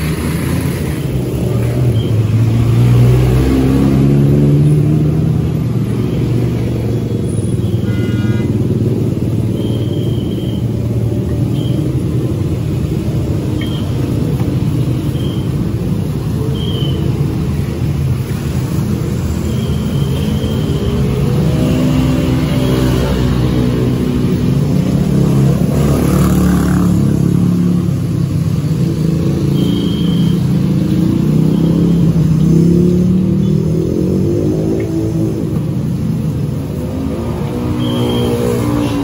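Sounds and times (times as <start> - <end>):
motorbike engines revving past: 0.0 - 7.2, 17.2 - 39.0.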